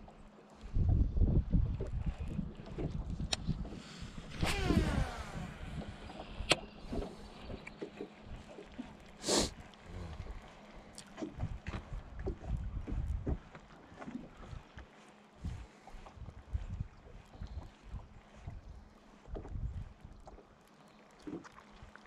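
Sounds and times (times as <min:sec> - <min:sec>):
low wind: 0:00.0 - 0:22.0
water rumble: 0:00.0 - 0:22.0
fishing reel spool whining: 0:04.2 - 0:08.3.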